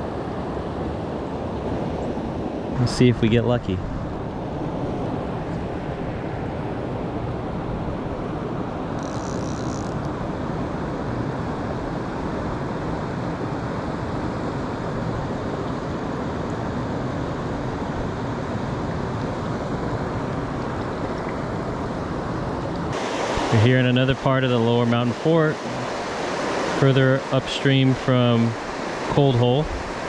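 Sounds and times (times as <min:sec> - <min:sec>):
river current rushing: 0:13.9 - 0:30.0.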